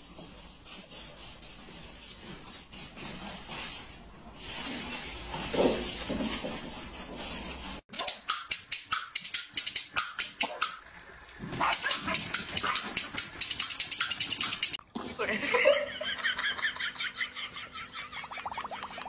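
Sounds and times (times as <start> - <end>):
dogs barking sharply: 9.9 - 10.8, 11.5 - 14.8.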